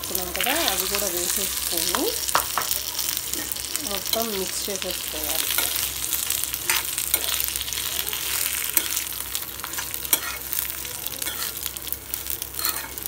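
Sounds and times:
food sizzling in oil: 0:00.0 - 0:13.0
metal spoon scraping a pan: 0:05.4 - 0:11.7, 0:12.5 - 0:13.0.

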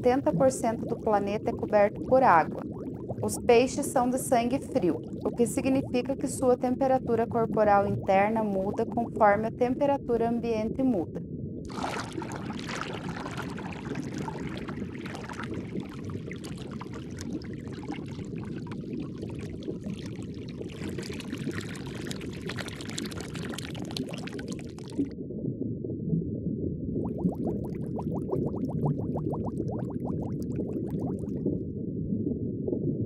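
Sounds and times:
water trickling: 0:00.0 - 0:09.6, 0:11.7 - 0:25.2, 0:27.1 - 0:31.4
water bubbling: 0:00.0 - 0:10.2, 0:11.6 - 0:25.2, 0:26.9 - 0:31.7
low rush of water: 0:11.7 - 0:24.9.

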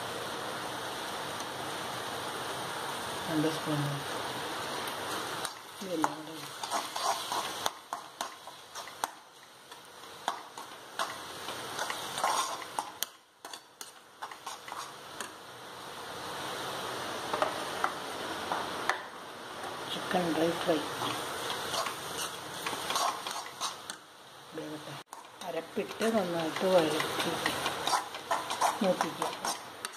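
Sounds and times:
food sizzling: 0:00.0 - 0:29.9
spatula scraping a frying pan: 0:05.4 - 0:15.4, 0:20.9 - 0:24.0, 0:25.1 - 0:29.9.

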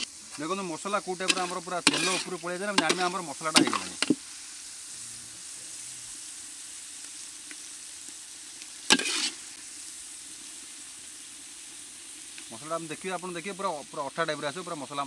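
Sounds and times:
masala sizzling in oil: 0:00.0 - 0:15.0
metal spatula scraping pan: 0:01.2 - 0:04.2, 0:08.9 - 0:09.4.

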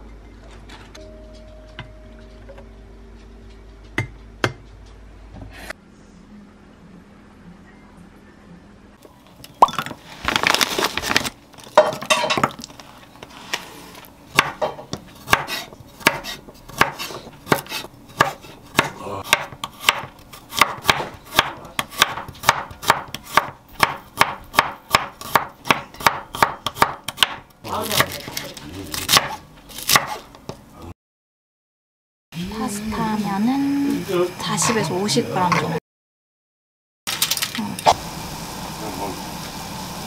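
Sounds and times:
knife chopping on wooden board: 0:14.3 - 0:28.4, 0:29.0 - 0:30.6.

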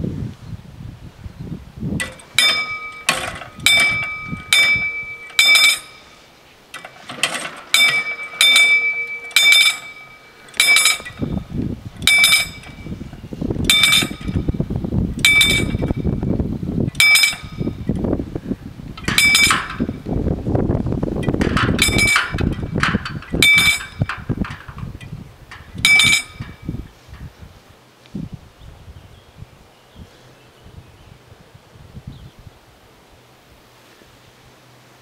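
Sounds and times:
wind rumble on microphone: 0:00.0 - 0:05.8, 0:10.6 - 0:33.7
level-crossing warning bell ringing: 0:02.0 - 0:06.2, 0:07.7 - 0:11.3, 0:12.0 - 0:13.0, 0:13.7 - 0:14.4, 0:15.2 - 0:16.0, 0:23.4 - 0:24.1, 0:25.8 - 0:26.7.

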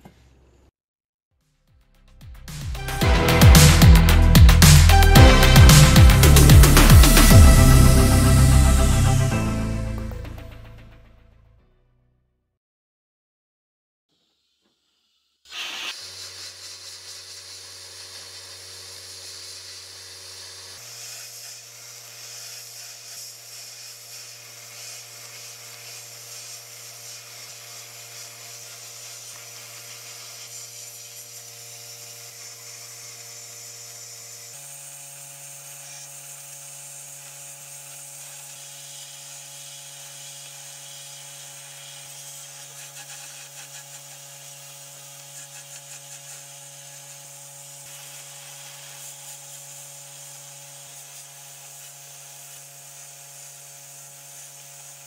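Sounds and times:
small power tool grinding: 0:14.1 - 0:55.0.

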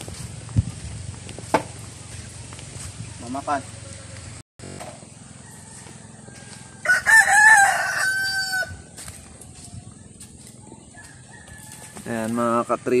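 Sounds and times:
rooster crowing: 0:05.1 - 0:09.0, 0:10.6 - 0:12.4.

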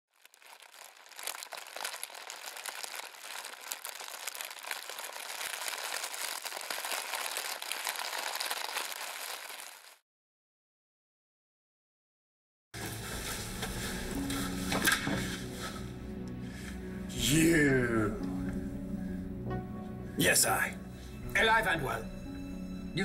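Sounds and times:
fire crackling: 0:00.1 - 0:10.0, 0:12.8 - 0:17.6.

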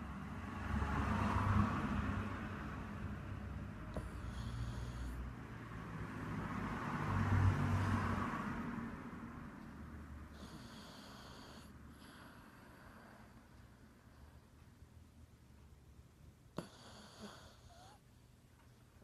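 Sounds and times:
dog snoring: 0:03.9 - 0:05.4, 0:10.3 - 0:13.4, 0:16.5 - 0:18.1.

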